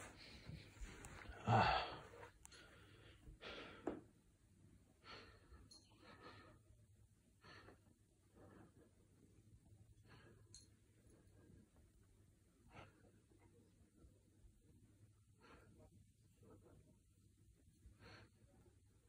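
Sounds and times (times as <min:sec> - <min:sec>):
person breathing: 0:00.0 - 0:04.0.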